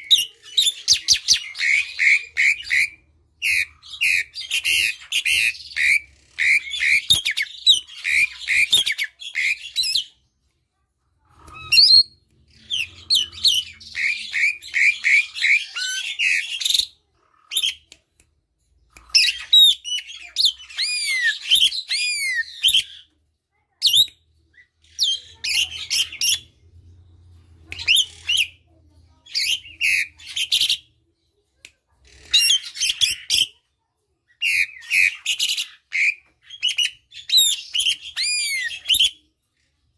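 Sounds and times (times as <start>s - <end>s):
starling chattering and whistling: 0.0s - 10.1s, 11.4s - 17.8s, 19.1s - 23.1s, 34.4s - 39.2s.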